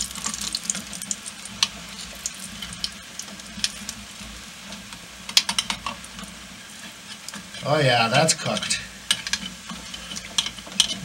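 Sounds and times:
dough sizzling in oil: 0:00.0 - 0:11.0.

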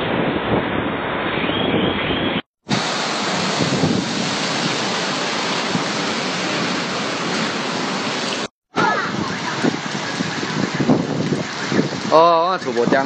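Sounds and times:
strong storm wind gusts: 0:00.0 - 0:13.0
heavy rain: 0:02.6 - 0:13.0.

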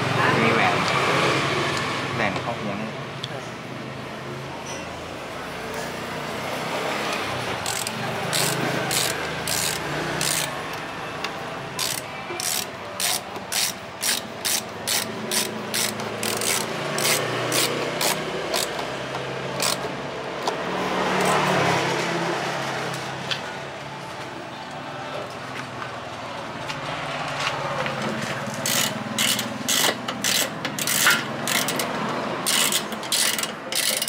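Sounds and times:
screwdriver ratchet clicks: 0:07.6 - 0:10.8, 0:11.8 - 0:18.9, 0:19.6 - 0:20.6, 0:28.6 - 0:31.9, 0:32.5 - 0:34.0.

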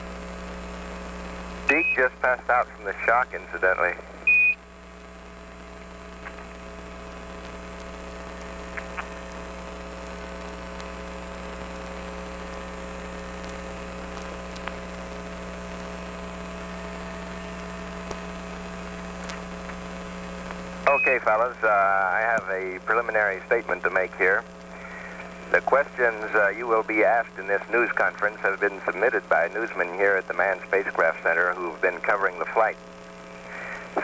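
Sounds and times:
radio hum and hiss: 0:00.0 - 0:34.0
steady radio tones: 0:01.2 - 0:34.0
short high beep: 0:04.3 - 0:04.6, 0:20.9 - 0:21.2.

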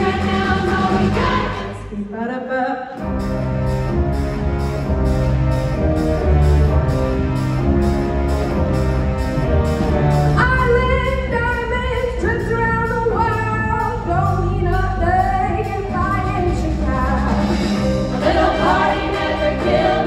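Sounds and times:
women singing: 0:00.0 - 0:02.9, 0:18.2 - 0:20.0
instrumental stage music: 0:00.0 - 0:20.0.

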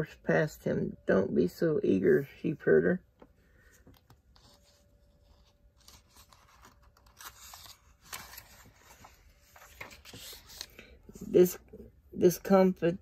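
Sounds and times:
book page rustling: 0:03.6 - 0:10.9.

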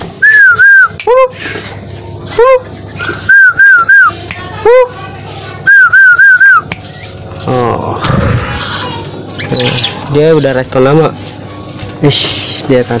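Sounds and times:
high whistled notes: 0:00.2 - 0:01.0, 0:03.0 - 0:04.2, 0:05.6 - 0:06.8.

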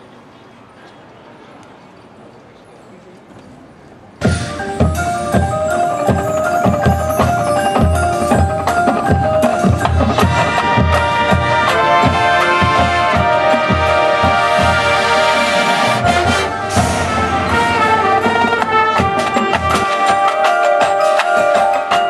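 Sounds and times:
marimbas and vibraphones: 0:04.2 - 0:13.4, 0:16.1 - 0:22.0
bass drums and snares beating: 0:04.2 - 0:15.2
held chords: 0:04.2 - 0:22.0.

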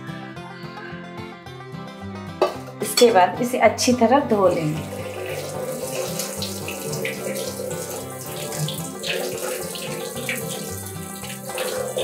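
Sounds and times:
tap running into metal bowl: 0:04.7 - 0:12.0
water splashing off hands: 0:04.8 - 0:12.0.

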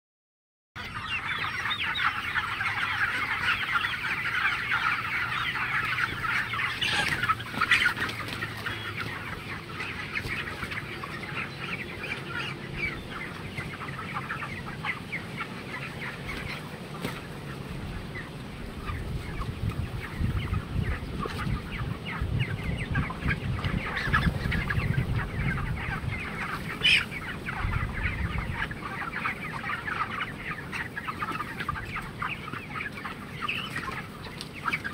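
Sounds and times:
chickens peeping and clucking: 0:00.8 - 0:34.9.

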